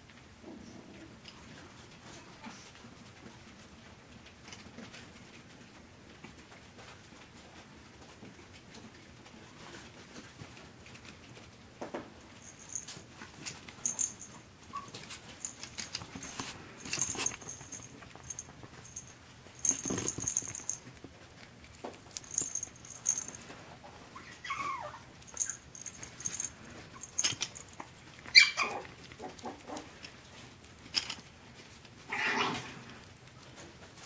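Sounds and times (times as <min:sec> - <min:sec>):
puppies scuffling on bedding: 0:06.4 - 0:32.0
puppy whining: 0:12.4 - 0:21.0, 0:21.8 - 0:30.0
puppy yipping: 0:24.1 - 0:27.5, 0:28.3 - 0:29.9.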